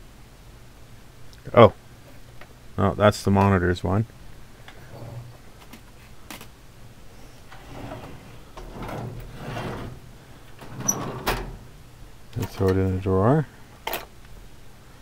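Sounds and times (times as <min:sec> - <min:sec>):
sliding rustling noise: 0:07.1 - 0:12.8.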